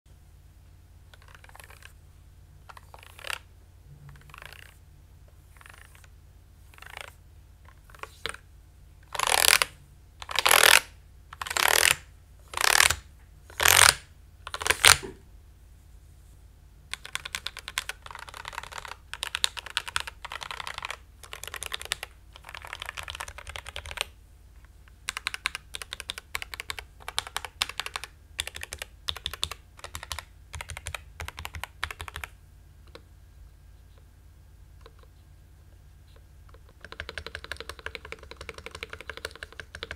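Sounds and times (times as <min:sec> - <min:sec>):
mechanical keyboard typing: 0:01.1 - 0:01.9, 0:02.7 - 0:03.4, 0:04.2 - 0:04.8, 0:05.6 - 0:06.1, 0:06.7 - 0:07.1, 0:09.1 - 0:13.0, 0:13.6 - 0:15.1, 0:16.9 - 0:24.1, 0:25.0 - 0:32.3, 0:36.5 - 0:39.9.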